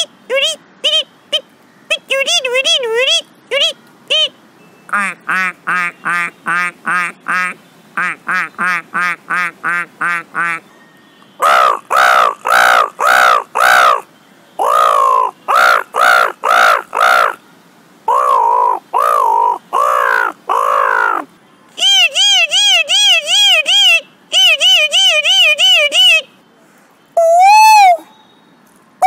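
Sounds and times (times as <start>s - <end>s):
man imitating crow caws: 11.4s - 17.4s, 18.1s - 21.3s.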